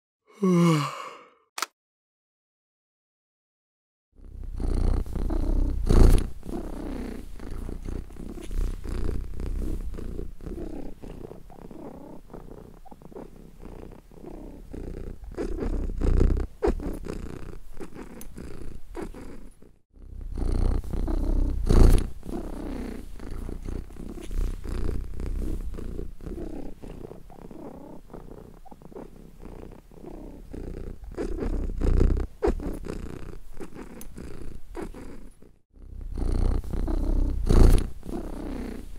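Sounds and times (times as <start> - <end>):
cat purring: 4.2 - 38.9.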